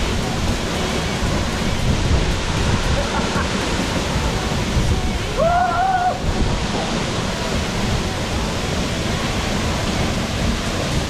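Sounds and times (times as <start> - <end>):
waterfall rushing: 0.0 - 11.0
person crying out: 5.4 - 6.2.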